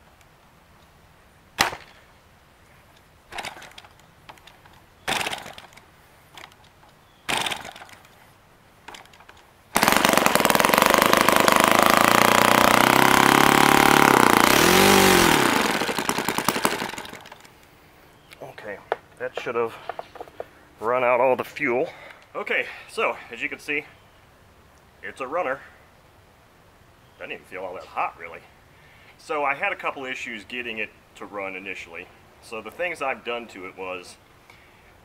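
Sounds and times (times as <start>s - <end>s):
model engine starting and running: 3.3s - 4.0s, 5.1s - 5.8s, 7.3s - 8.0s, 9.8s - 17.5s.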